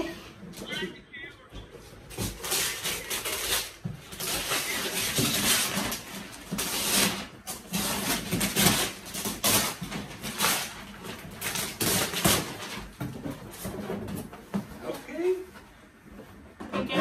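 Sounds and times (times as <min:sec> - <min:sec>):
paper and cardboard tearing: 0:02.1 - 0:12.9.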